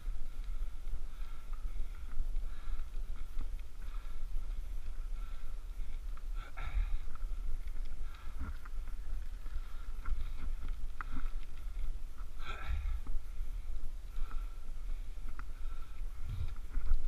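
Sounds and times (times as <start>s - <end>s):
light ticks: 0.0s - 17.0s
wind rumbling on microphone: 0.0s - 17.0s.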